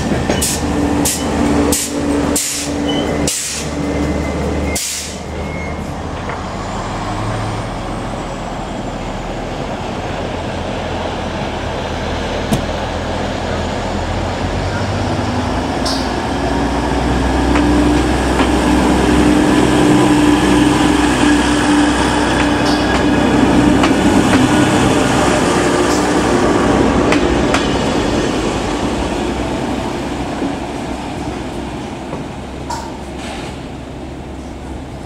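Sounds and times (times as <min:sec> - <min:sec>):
diesel train engine humming: 0:00.0 - 0:35.0.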